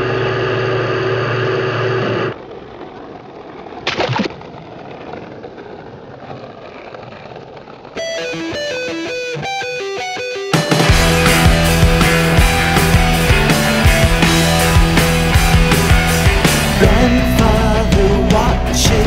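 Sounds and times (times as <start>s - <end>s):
guitar music: 8.0s - 19.0s.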